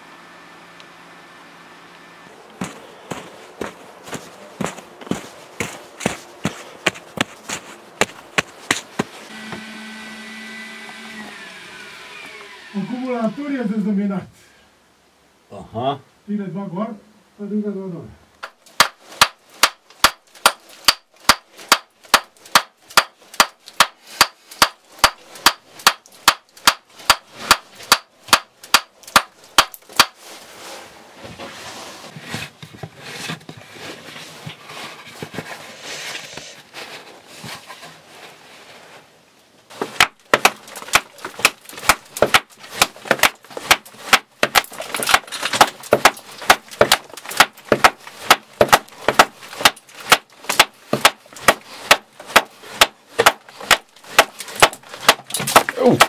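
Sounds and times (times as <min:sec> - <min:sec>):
tool striking rock: 0:04.1 - 0:09.7, 0:18.4 - 0:30.2, 0:39.7 - 0:56.0
loose rubble scraping: 0:39.7 - 0:56.0.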